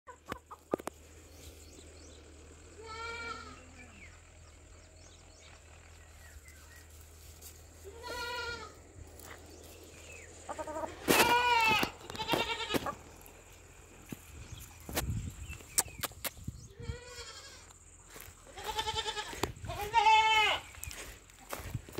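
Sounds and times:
drawn-out animal cries: 2.6s - 4.6s, 7.8s - 8.9s, 10.3s - 13.4s.

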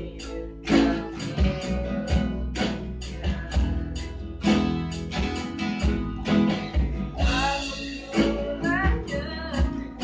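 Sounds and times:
person singing: 0.0s - 4.8s, 7.1s - 10.0s
acoustic guitars strumming: 0.0s - 10.0s
bass guitar line: 0.0s - 10.0s.

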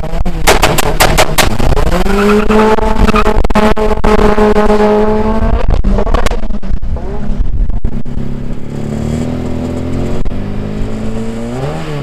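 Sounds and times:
racing engine revving: 0.0s - 12.0s
sharp engine cracks: 0.4s - 1.7s.

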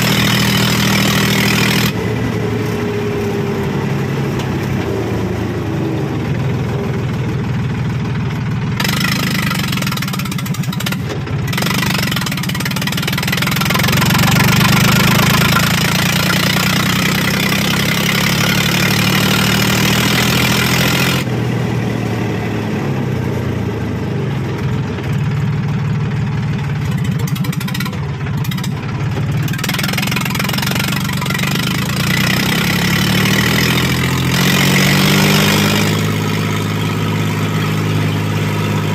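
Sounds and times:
tractor diesel engine open exhaust: 0.0s - 38.9s.

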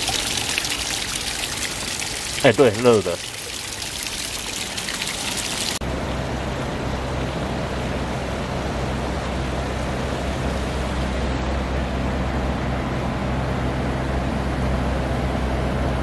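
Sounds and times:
water splashing into stone basin: 0.0s - 5.8s
river water rushing: 0.0s - 11.4s.

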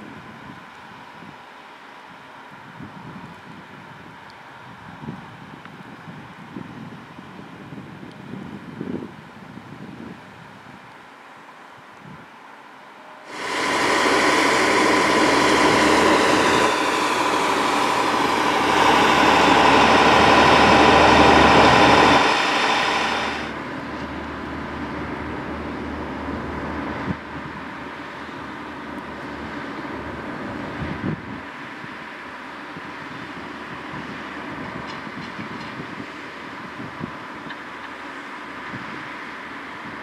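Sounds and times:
snow-removal train running: 13.0s - 40.0s.

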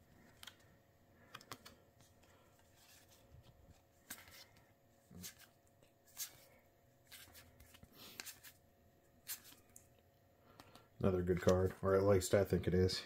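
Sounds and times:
trading cards sliding and snapping: 0.3s - 8.6s, 9.2s - 9.7s.

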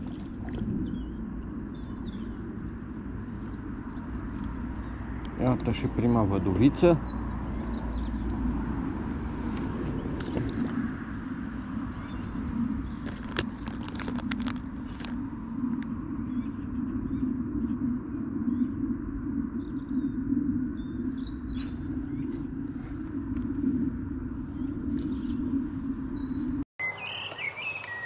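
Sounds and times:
low rumble: 0.0s - 26.6s
high bird chirps: 24.5s - 28.0s.

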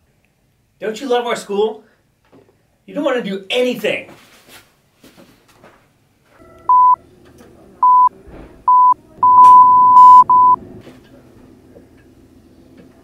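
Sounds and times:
censor beeps: 6.7s - 7.0s, 7.8s - 8.1s, 8.7s - 10.6s.

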